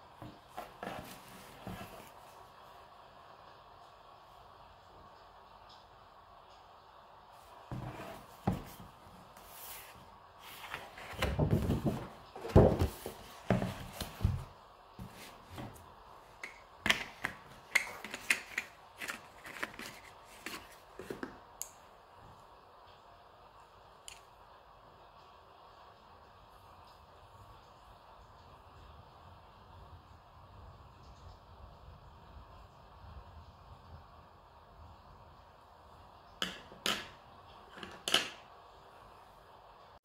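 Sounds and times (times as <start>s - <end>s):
paper rustling: 7.7s - 15.8s, 18.0s - 21.2s.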